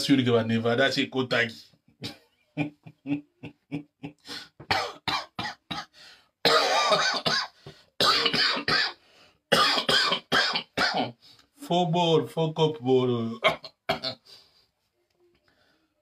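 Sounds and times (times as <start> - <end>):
man coughing: 4.6 - 11.2, 13.4 - 14.2.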